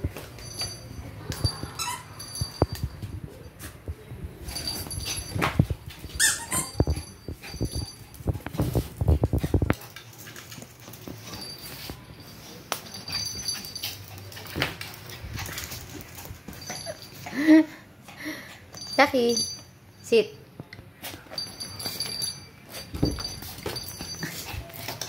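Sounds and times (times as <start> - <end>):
dogs scuffling and knocking: 0.0 - 17.2, 21.0 - 25.0
dog whining in squeaks: 6.2 - 6.9.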